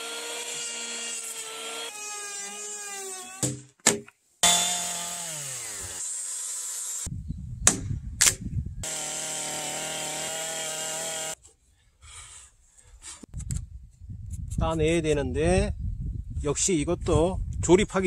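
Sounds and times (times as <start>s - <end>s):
electric hand planer running: 0.0s - 1.9s, 4.4s - 6.0s, 8.8s - 11.4s.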